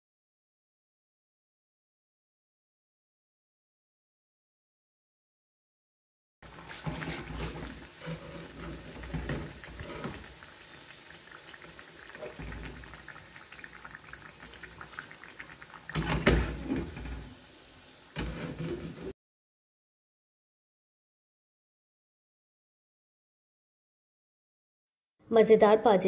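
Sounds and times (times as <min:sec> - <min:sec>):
food sizzling in hot oil: 0:06.4 - 0:19.2.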